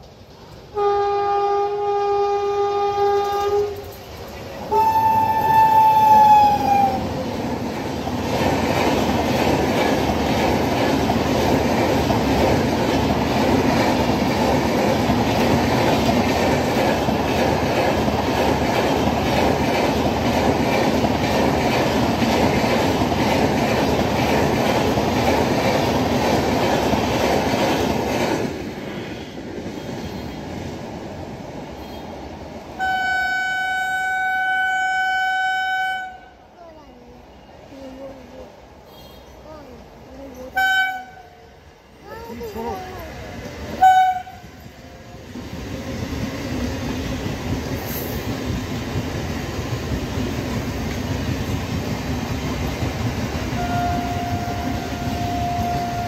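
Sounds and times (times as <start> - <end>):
train rumble with wheel clatter: 0.0 - 56.0
locomotive horn: 0.7 - 3.8, 4.7 - 7.0, 32.8 - 36.4, 40.6 - 41.4, 43.8 - 44.6, 53.6 - 56.0
train horn held note: 0.7 - 3.8, 4.7 - 7.0, 32.8 - 36.4, 40.6 - 41.4, 43.8 - 44.6, 53.6 - 56.0.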